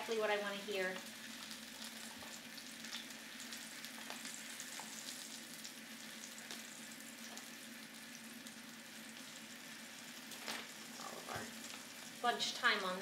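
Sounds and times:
chicken frying in oil: 0.0s - 13.0s
oil crackles and pops: 0.8s - 13.0s.

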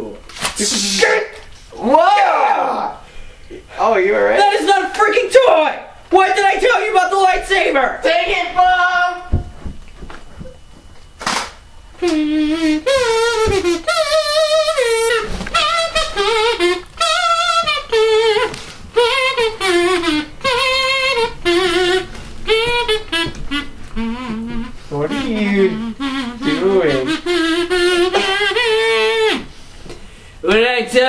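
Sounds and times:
kazoo playing a tune: 0.0s - 1.7s, 11.2s - 30.4s.

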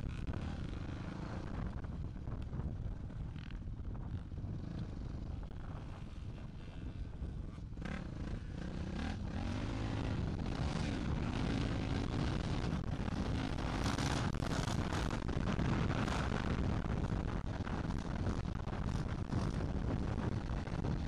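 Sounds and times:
wind on microphone: 0.0s - 21.0s
dirt bikes revving: 4.2s - 17.2s.

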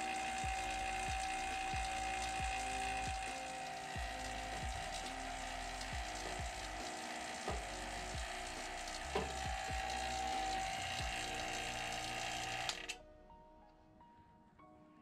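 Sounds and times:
vacuum pump whining: 0.0s - 13.0s.

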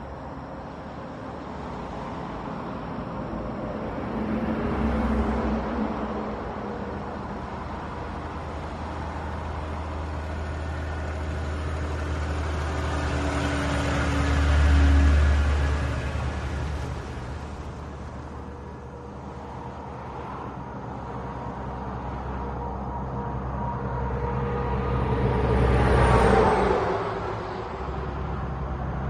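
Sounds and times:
truck diesel engine driving past: 2.0s - 29.0s.

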